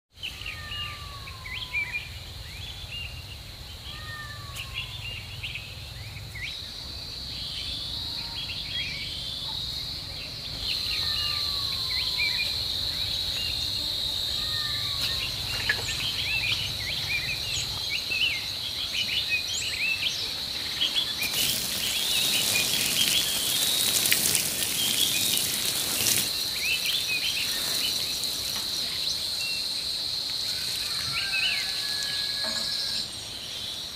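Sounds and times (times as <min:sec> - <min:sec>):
insects droning: 0:00.2 - 0:33.9
birds chirping: 0:07.4 - 0:30.0
rushing hiss: 0:21.0 - 0:29.0.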